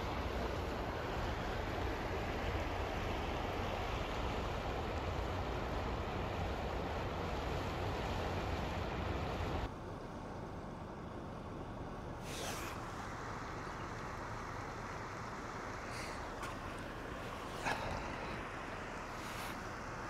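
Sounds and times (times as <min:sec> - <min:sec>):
shallow river over rocks: 0:00.0 - 0:09.7, 0:12.2 - 0:20.0
brief hiss: 0:12.2 - 0:13.1.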